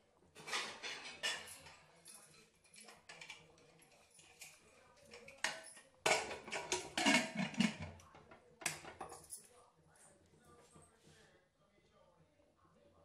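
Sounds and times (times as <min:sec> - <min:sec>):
dishes and utensils clinking: 0:00.4 - 0:09.5.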